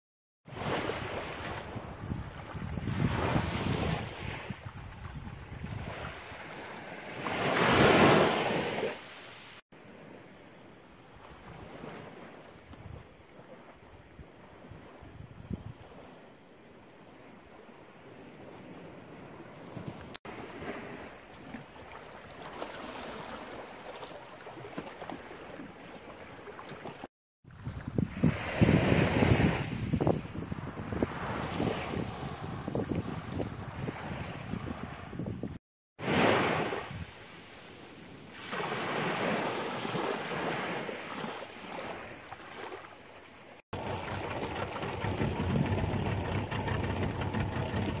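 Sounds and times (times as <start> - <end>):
shallow water rippling: 10.9 - 27.1, 36.2 - 48.0
small waves lapping on rocks: 20.3 - 27.1, 38.4 - 48.0.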